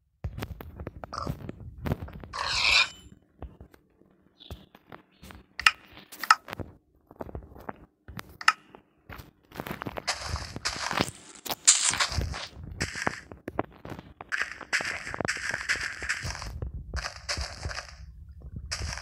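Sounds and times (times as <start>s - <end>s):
rasping scrape: 2.4s - 3.1s.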